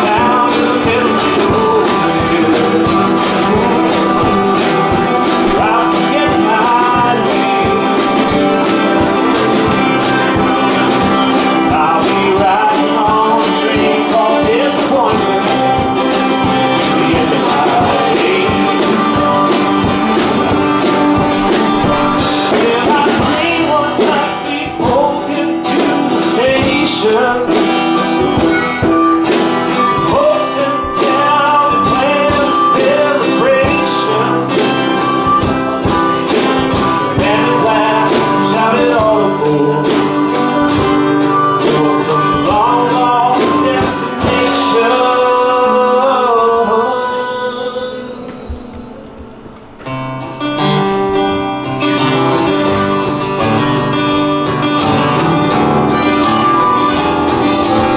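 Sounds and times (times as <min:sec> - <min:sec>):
steady beat: 0:00.0 - 0:45.1, 0:48.2 - 0:57.9
man singing: 0:00.0 - 0:48.9
strummed acoustic guitar: 0:00.0 - 0:57.9.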